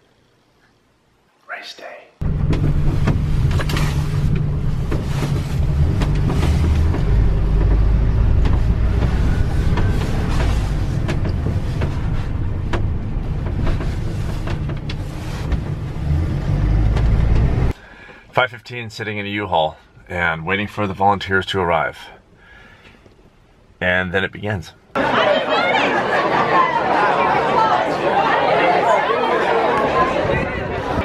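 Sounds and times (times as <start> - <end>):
vehicle engine and tyre rumble: 2.2 - 17.8
clicks and knocks in cab: 2.3 - 15.9.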